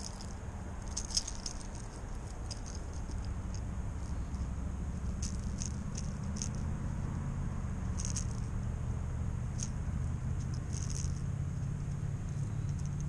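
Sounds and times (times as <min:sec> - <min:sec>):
fishing reel clicking: 0:05.2 - 0:06.6, 0:08.0 - 0:08.5.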